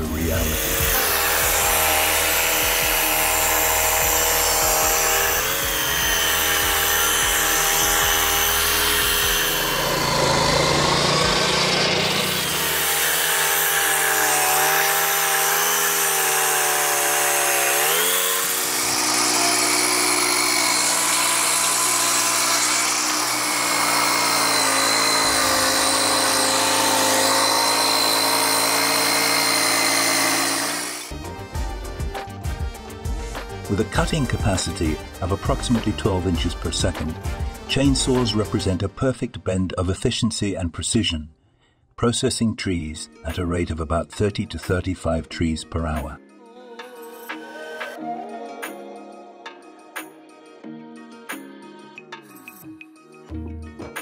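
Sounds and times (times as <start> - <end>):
sawmill cutting log: 0.0 - 31.3, 32.9 - 38.9.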